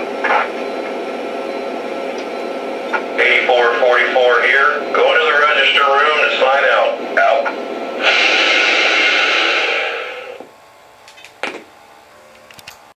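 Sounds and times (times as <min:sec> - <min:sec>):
model locomotive hiss: 0:08.0 - 0:10.5.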